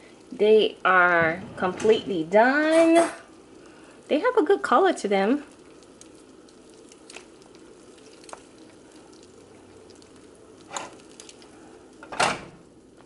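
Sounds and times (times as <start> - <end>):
wet squishing: 5.4 - 12.0.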